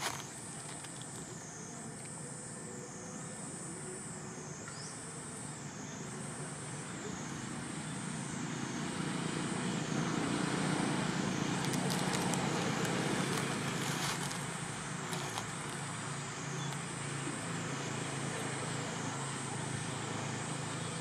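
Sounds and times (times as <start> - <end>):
road vehicle passing: 8.4 - 21.0.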